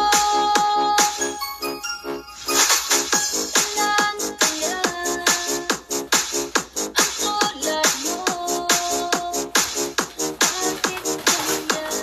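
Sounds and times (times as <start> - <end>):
electronic dance music: 3.0 - 12.0.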